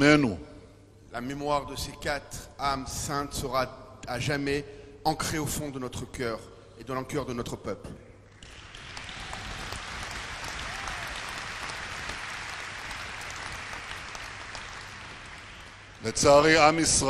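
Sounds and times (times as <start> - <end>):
crowd applauding: 8.3 - 16.8.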